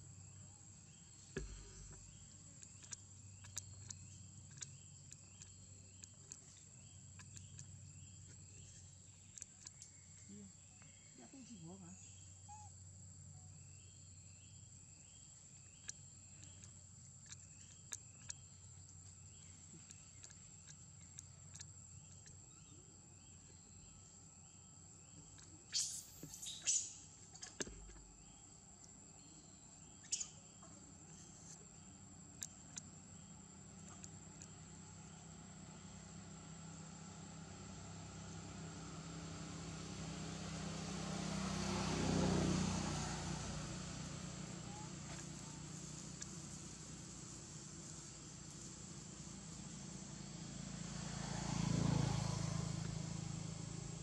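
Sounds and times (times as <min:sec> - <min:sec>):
insects droning: 0:00.0 - 0:54.0
faint clicks: 0:01.4 - 0:10.9, 0:15.7 - 0:22.4
vehicle engine drone passing: 0:33.1 - 0:54.0.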